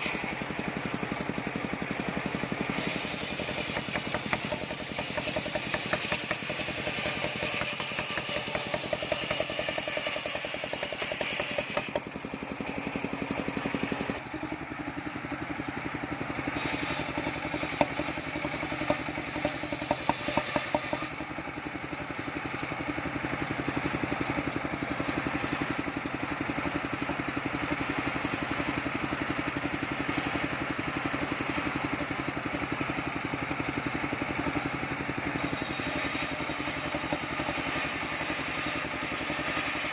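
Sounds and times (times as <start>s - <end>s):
engine running: 0.0s - 39.9s
circular saw ripping wood: 2.7s - 12.1s, 16.6s - 21.2s, 35.3s - 39.9s.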